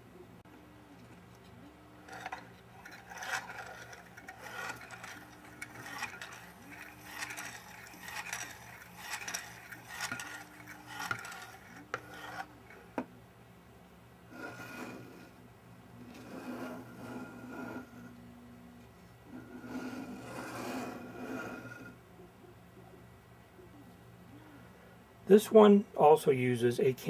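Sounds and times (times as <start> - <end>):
plastic gears rasping: 2.0 - 12.8.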